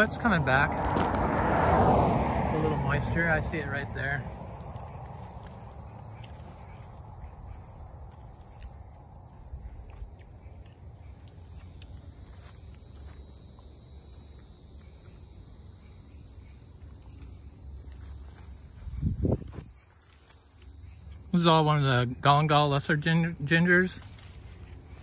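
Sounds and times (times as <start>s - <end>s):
insects calling: 0.0s - 25.0s.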